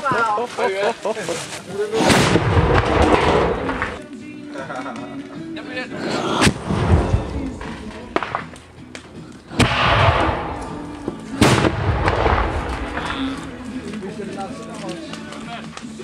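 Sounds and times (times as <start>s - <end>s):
cannon bangs with rolling echo: 2.0s - 4.0s, 6.4s - 8.5s, 9.5s - 13.6s
smaller cracks: 2.0s - 5.3s, 6.1s - 16.0s.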